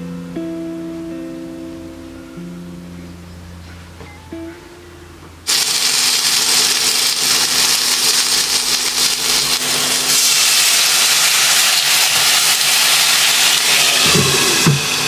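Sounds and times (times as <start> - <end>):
dumplings sizzling in a pan: 5.5 - 15.0.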